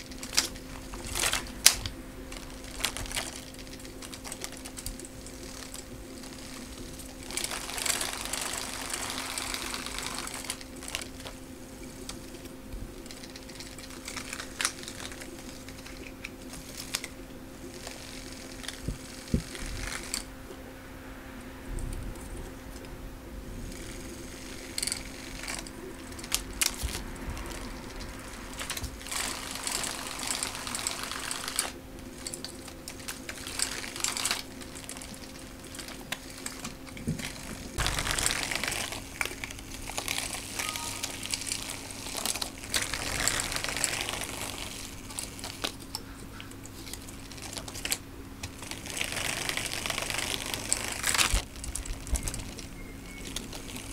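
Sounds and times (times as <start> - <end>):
faint steady hum: 0.0 - 53.9.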